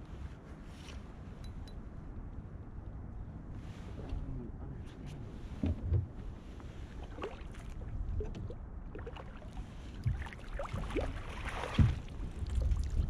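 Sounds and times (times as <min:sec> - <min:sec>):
knocks and thumps in kayak: 0:10.0 - 0:12.3.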